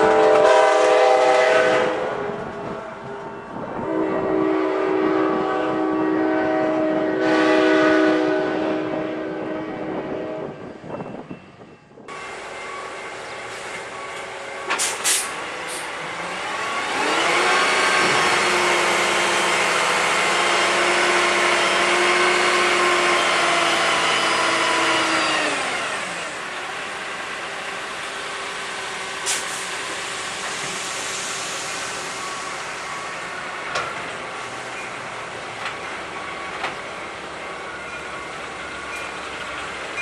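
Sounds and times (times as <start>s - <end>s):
locomotive air horn blast: 0.0s - 3.2s, 3.8s - 10.6s
train rumbling: 0.0s - 40.0s.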